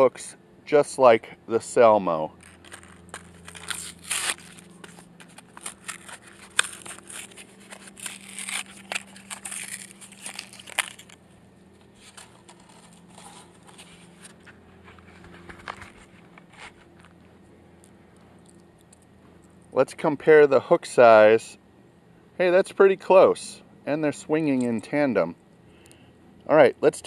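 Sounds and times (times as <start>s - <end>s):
plastic packaging crinkling and tearing: 2.4s - 11.2s, 11.9s - 17.1s
rustling: 2.4s - 11.2s, 11.8s - 17.2s.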